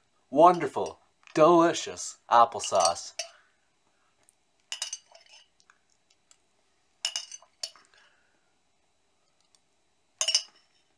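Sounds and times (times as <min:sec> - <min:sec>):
spoon clinking against a dish: 0:02.6 - 0:03.4, 0:07.0 - 0:07.8, 0:10.2 - 0:10.7.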